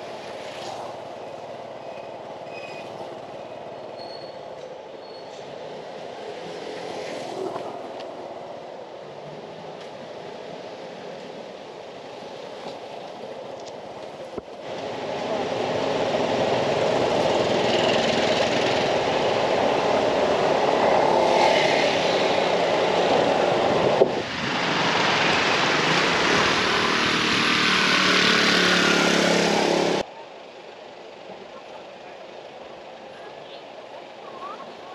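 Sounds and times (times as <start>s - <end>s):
passing cars hum: 0.0s - 34.9s
vehicle engines and wind rush: 0.0s - 34.9s.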